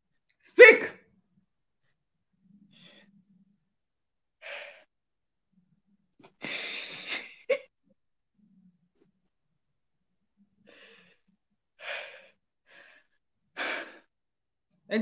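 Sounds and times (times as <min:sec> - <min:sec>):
person breathing heavily: 0:06.4 - 0:07.3, 0:10.7 - 0:14.1.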